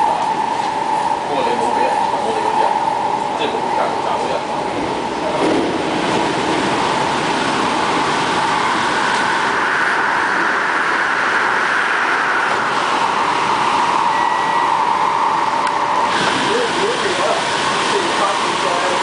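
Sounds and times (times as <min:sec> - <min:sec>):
train wheels on rail: 0:00.0 - 0:19.0
whistle-like tone: 0:14.0 - 0:14.9.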